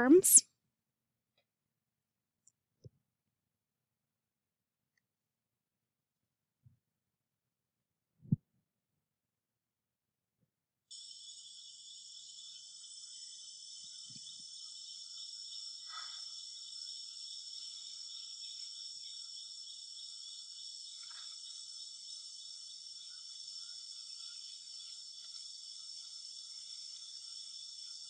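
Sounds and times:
high-pitched insect chorus: 0:10.9 - 0:28.0.

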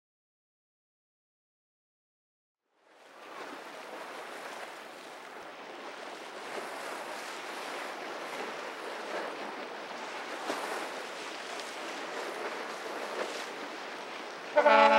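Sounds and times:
wind: 0:02.6 - 0:14.9
waves rushing: 0:03.0 - 0:14.9.

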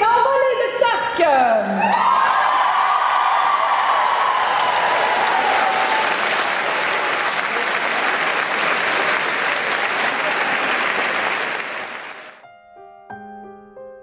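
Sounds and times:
audience applauding: 0:01.8 - 0:12.4
soft piano music: 0:12.4 - 0:14.0.

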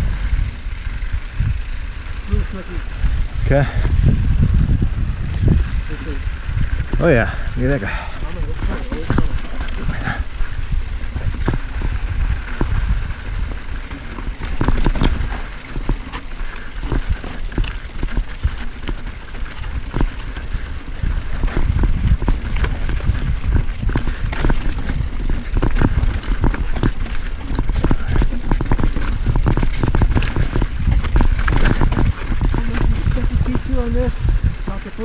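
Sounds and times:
bike clicking and rattling: 0:00.0 - 0:35.0
tyres rumbling over dirt and rock: 0:00.0 - 0:35.0
wind buffeting microphone: 0:00.0 - 0:35.0.

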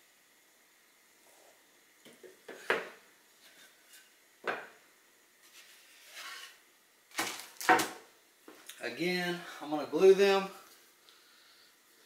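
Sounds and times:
wood scraping rub: 0:05.4 - 0:06.6.

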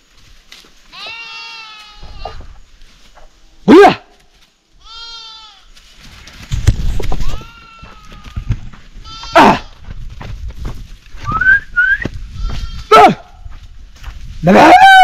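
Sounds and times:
goats and sheep bleating: 0:00.8 - 0:02.6, 0:04.8 - 0:05.9, 0:07.1 - 0:09.9, 0:12.3 - 0:13.3.

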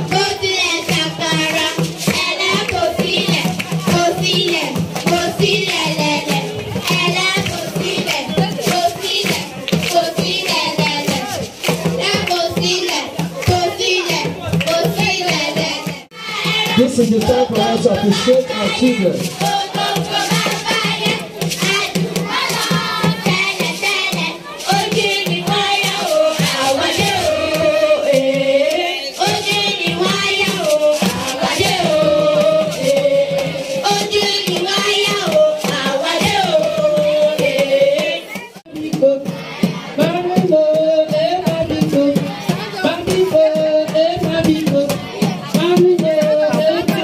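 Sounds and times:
hand clapping: 0:00.0 - 0:16.0
children singing: 0:00.0 - 0:47.0.

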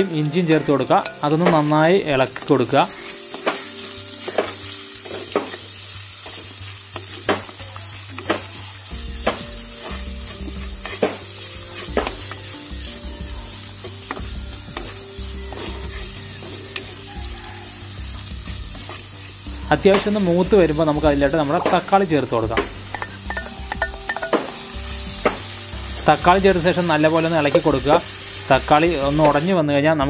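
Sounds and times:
vegetables sizzling in hot oil: 0:00.0 - 0:29.6
spoon knocking against clay pot: 0:22.6 - 0:24.6.

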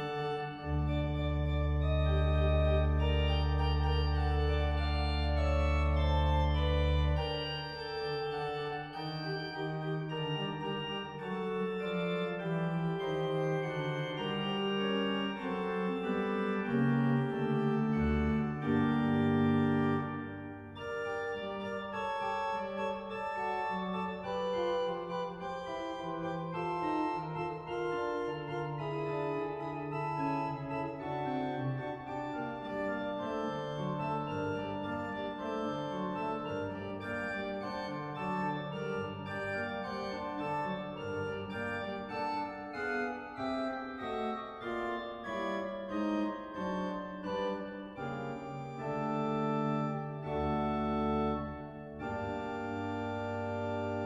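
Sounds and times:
loud sustained organ bass chord: 0:00.0 - 0:14.3
pipe organ playing a fugue: 0:00.0 - 0:54.0.

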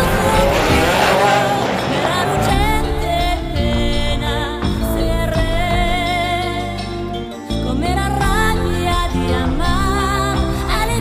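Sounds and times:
race car engines passing: 0:00.0 - 0:03.6
background music: 0:00.0 - 0:11.0.

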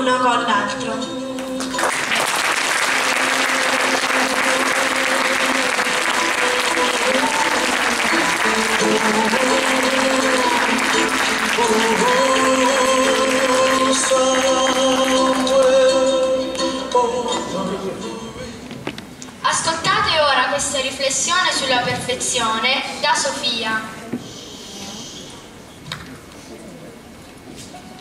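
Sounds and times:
background music: 0:00.0 - 0:18.8
audience applauding: 0:01.6 - 0:15.8.

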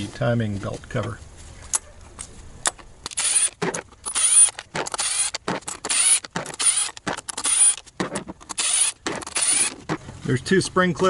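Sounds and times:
power driver whirring: 0:03.1 - 0:10.0.

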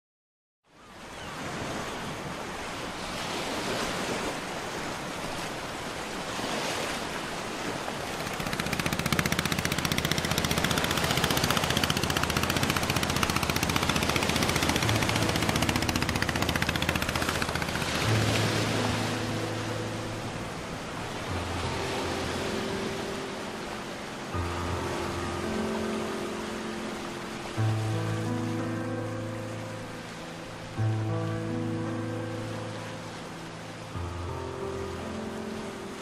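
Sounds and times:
waves washing on shore: 0:01.2 - 0:36.0
small boat engine puttering: 0:08.0 - 0:18.8.

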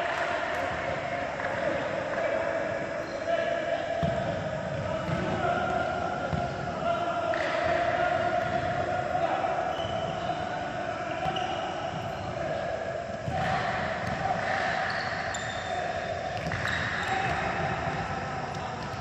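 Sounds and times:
balls bouncing on wooden floor: 0:16.3 - 0:19.0.

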